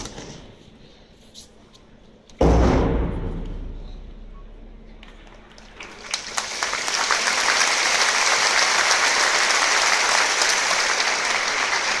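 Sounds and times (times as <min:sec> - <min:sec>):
large audience applauding: 0:05.2 - 0:12.0.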